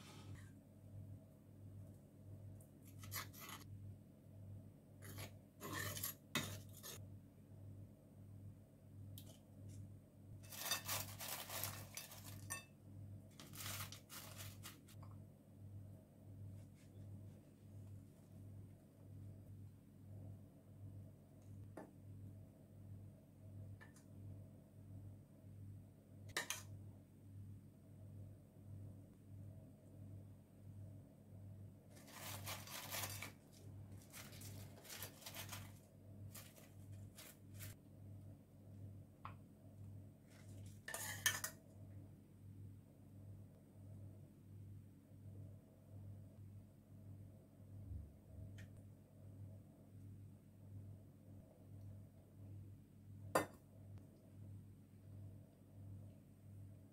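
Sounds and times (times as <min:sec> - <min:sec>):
low steady hum: 0:00.0 - 0:56.9
scratchy handling noise: 0:02.8 - 0:03.7, 0:05.0 - 0:07.0, 0:10.4 - 0:12.7, 0:13.3 - 0:15.0, 0:31.9 - 0:37.8
spoon scraping earthenware dish: 0:02.9 - 0:03.7, 0:05.0 - 0:07.0, 0:40.8 - 0:41.6
fried potato sticks rustling: 0:10.4 - 0:12.7, 0:13.3 - 0:15.0, 0:31.9 - 0:37.8.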